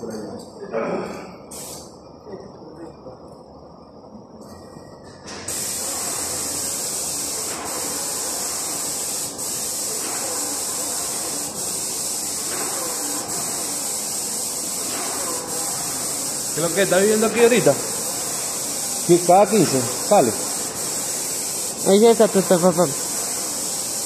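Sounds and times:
paint spray gun hissing: 5.5s - 24.0s.

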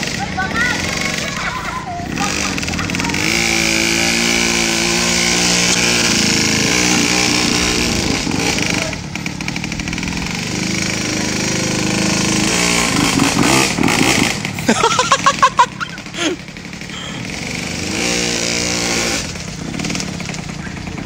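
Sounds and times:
two-stroke dirt bike engine buzzing: 0.0s - 21.0s.

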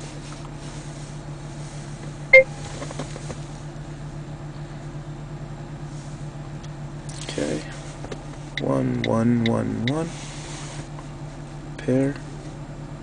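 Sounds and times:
low hum in car cabin: 0.0s - 13.0s
short electronic beep: 2.3s - 2.6s.

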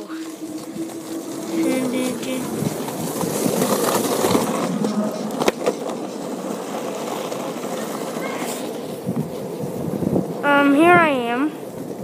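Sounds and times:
small wheels rolling over pavement: 0.0s - 12.0s.

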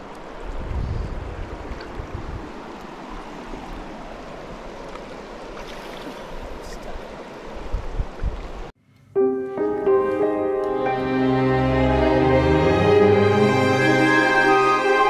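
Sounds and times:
creek water rushing: 1.3s - 8.7s
music with long held notes: 8.9s - 15.0s.

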